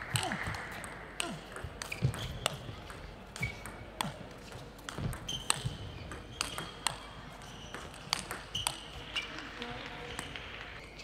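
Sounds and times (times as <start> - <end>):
table tennis ball clicks: 7.7 - 10.6.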